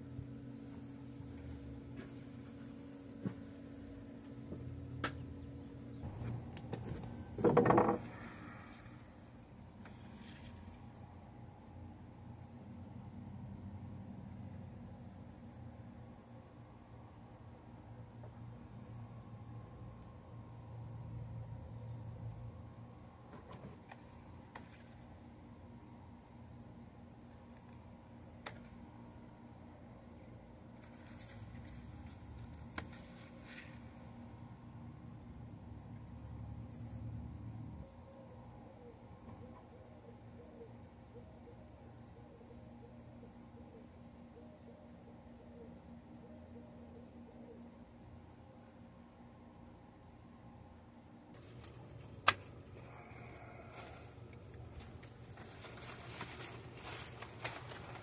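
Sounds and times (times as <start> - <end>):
leaves rustling: 51.4 - 58.0.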